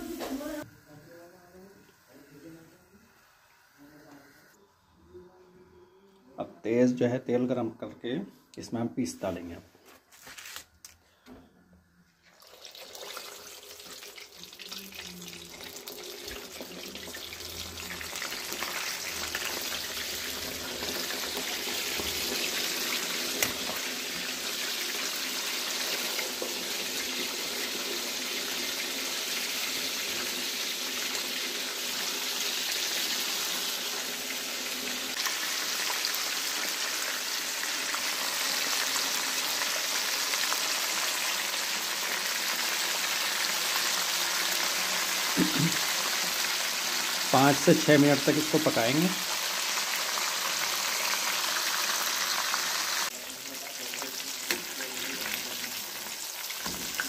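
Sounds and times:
chicken deep-frying in oil: 12.3 - 57.0.

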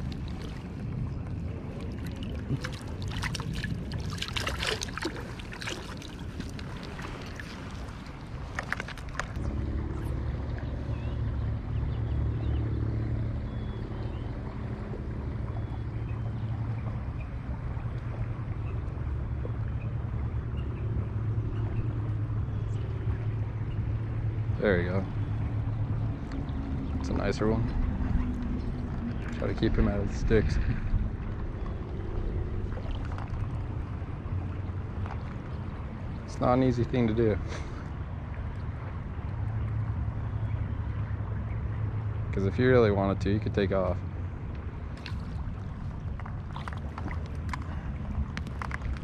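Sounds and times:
small splashes and ticks: 0.0 - 12.6, 13.7 - 49.0.

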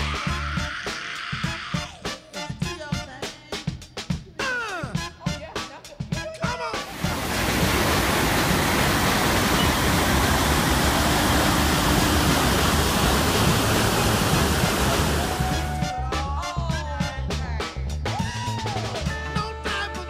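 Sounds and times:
waterfall rushing: 6.8 - 15.8.

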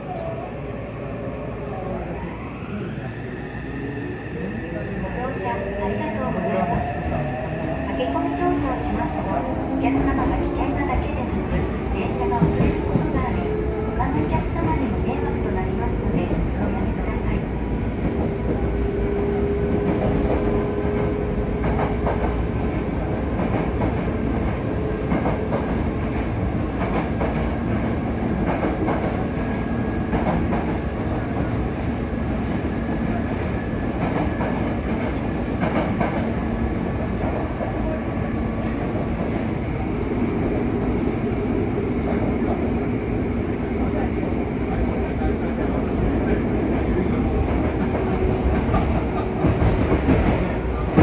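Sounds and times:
train wheels rumbling on rail: 2.6 - 51.0.

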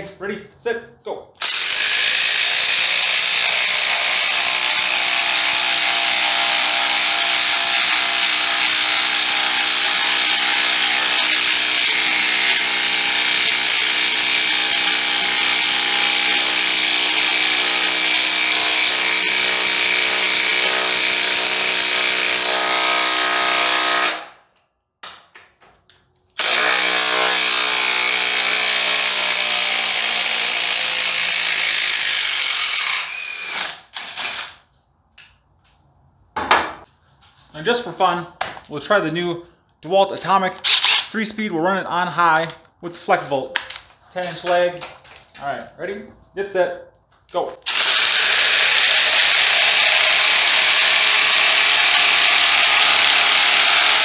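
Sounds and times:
impact wrench hammering: 1.4 - 24.3, 26.4 - 34.6, 47.7 - 54.0.

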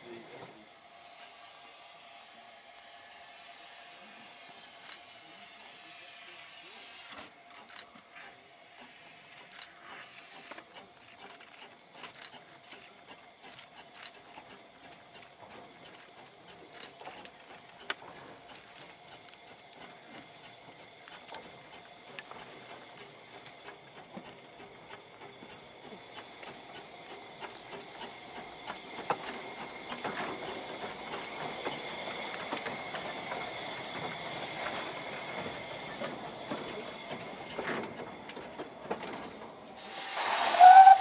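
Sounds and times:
steam hissing: 0.0 - 41.0
light clicks and clanks: 10.4 - 25.0.

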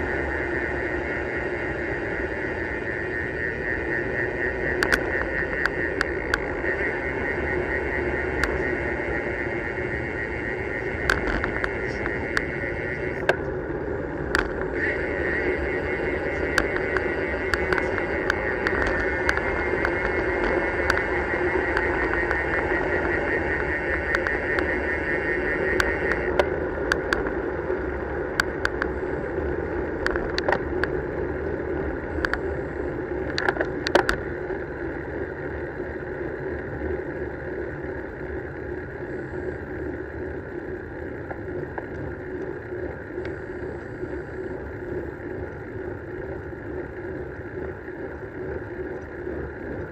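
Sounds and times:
high buzz: 0.0 - 30.6
tyre and road noise: 0.0 - 49.9.

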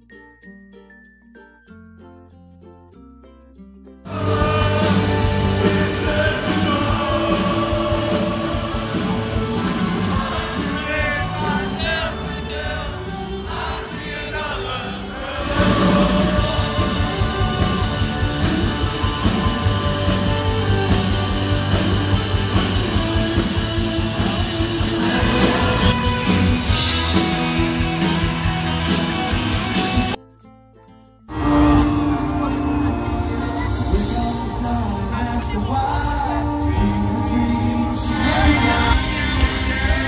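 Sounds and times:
live rock band with singer: 4.1 - 30.2, 31.3 - 40.0.

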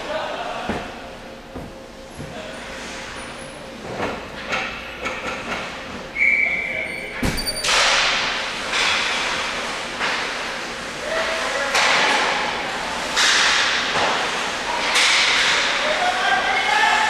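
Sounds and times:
high whistle tone: 6.1 - 7.7.

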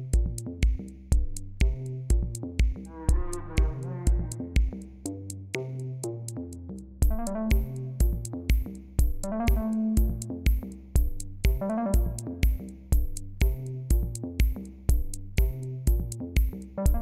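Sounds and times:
drum machine beat: 0.0 - 6.4, 7.0 - 17.0
synthesizer chords and melody: 7.1 - 8.3, 9.2 - 10.3, 11.5 - 12.5.

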